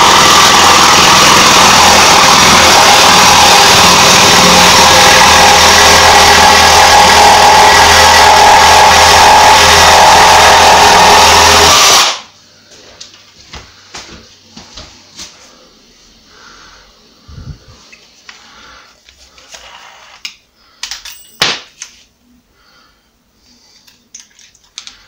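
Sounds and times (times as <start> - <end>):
jigsaw sawing board: 0.0 - 12.2.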